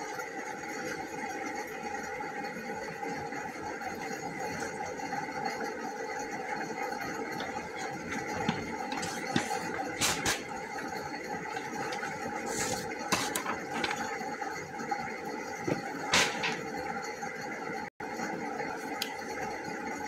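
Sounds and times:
steady background hum: 0.0s - 20.0s
paper rustling and flapping: 7.4s - 10.6s, 11.5s - 14.1s.

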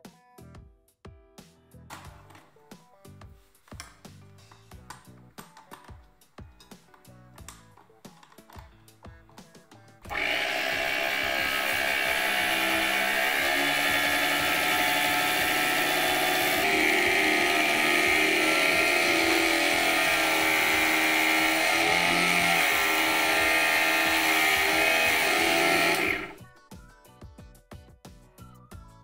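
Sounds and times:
scroll saw cutting brass: 10.1s - 26.4s.

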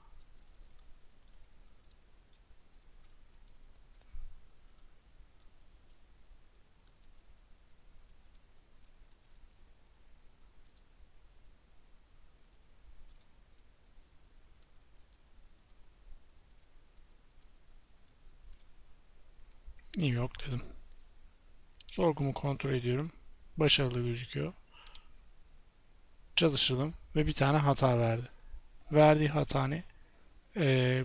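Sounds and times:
typing on computer keyboard: 0.2s - 6.0s, 6.8s - 9.7s, 10.4s - 11.0s.

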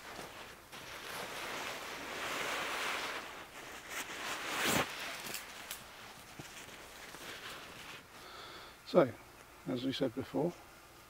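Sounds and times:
fabric rustling and swishing: 0.0s - 8.2s.

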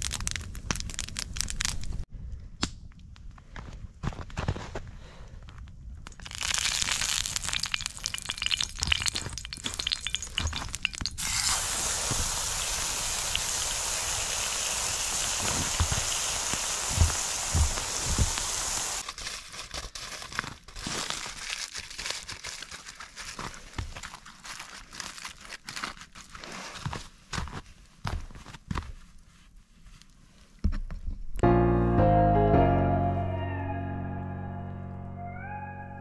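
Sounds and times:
meat sizzling in a frying pan: 6.3s - 19.0s.

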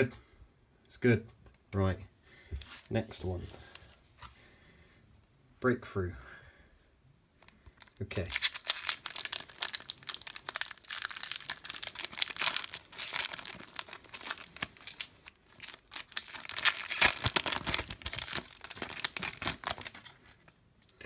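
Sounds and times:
foil wrapper crinkling and tearing: 7.4s - 20.6s.

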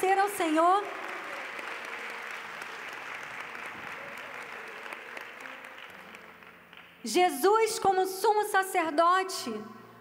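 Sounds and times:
congregation applauding: 0.0s - 7.1s.

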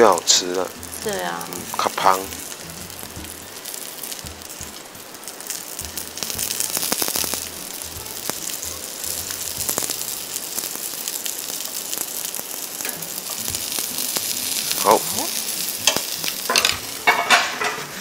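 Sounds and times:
food sizzling in oil: 0.0s - 18.0s.

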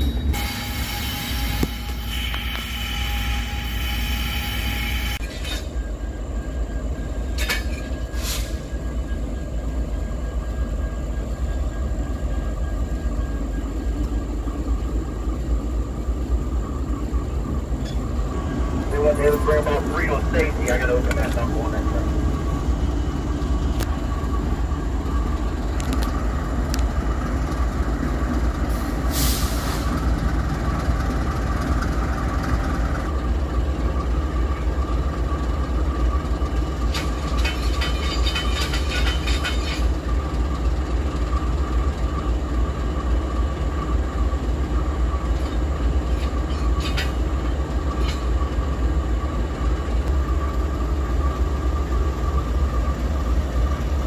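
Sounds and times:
locomotive engines rumbling: 0.0s - 54.0s
rattles and clicks: 36.6s - 40.4s.

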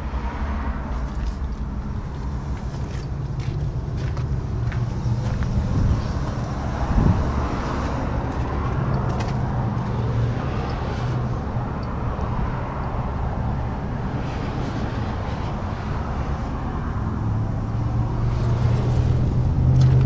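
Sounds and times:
vehicle engine idling: 0.8s - 13.5s.

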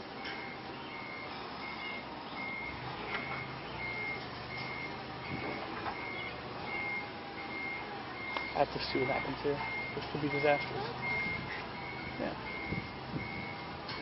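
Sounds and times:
forklift warning beeper: 0.0s - 14.0s.

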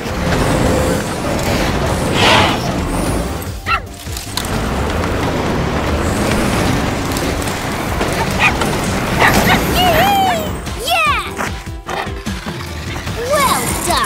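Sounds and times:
cartoon background music: 0.0s - 6.8s, 7.9s - 14.0s
low rumble: 0.0s - 9.7s.

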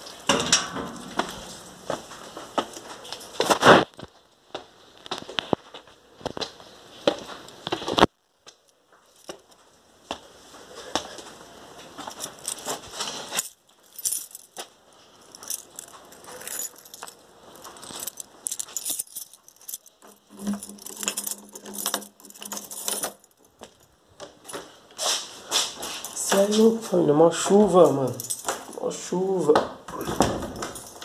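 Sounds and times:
low steady hum: 0.0s - 3.5s
keys jangling: 12.0s - 24.6s, 27.8s - 29.1s, 29.9s - 31.0s.

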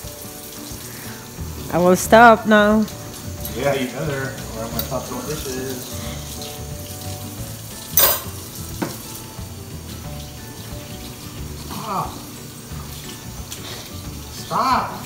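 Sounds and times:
faucet running into sink: 0.0s - 15.0s
dishware clattering: 7.9s - 9.0s.

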